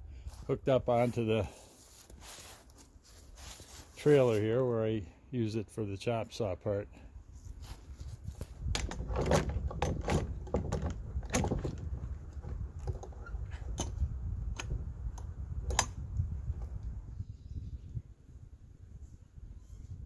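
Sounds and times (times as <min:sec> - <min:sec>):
chainsaw being handled rattling: 0:08.6 - 0:14.0.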